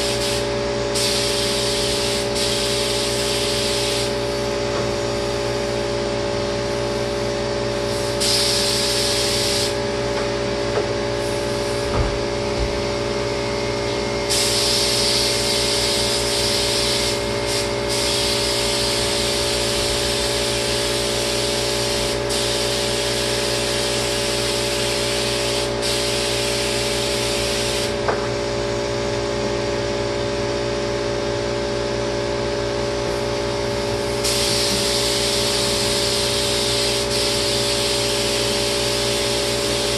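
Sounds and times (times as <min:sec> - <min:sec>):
spray gun hissing: 0:00.0 - 0:04.4, 0:06.9 - 0:09.8, 0:14.3 - 0:27.9, 0:34.2 - 0:39.9
sprayer motor hum: 0:33.0 - 0:39.9.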